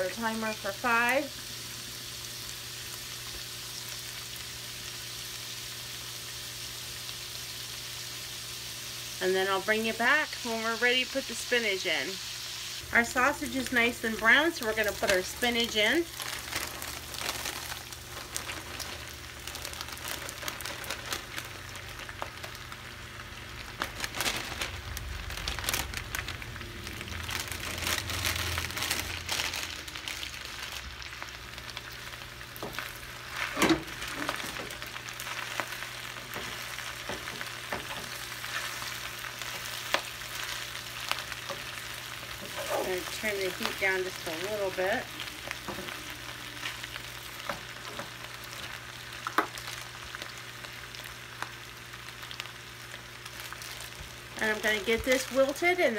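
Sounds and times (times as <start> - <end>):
sausage sizzling in oil: 0.0 - 55.9
spatula stirring in skillet: 33.3 - 44.4.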